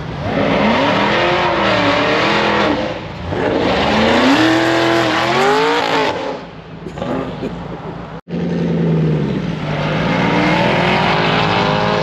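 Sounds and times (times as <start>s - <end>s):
car engine revving hard: 0.2s - 6.5s, 9.6s - 12.0s.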